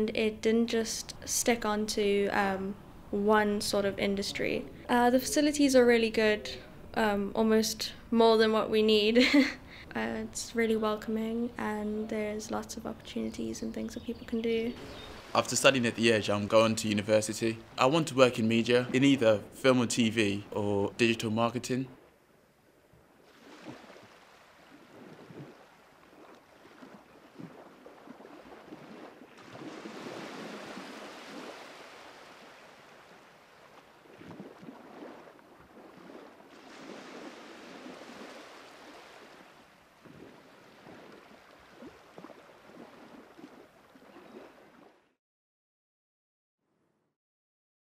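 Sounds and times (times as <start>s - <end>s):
sea waves washing in: 14.8s - 16.0s, 23.2s - 44.9s.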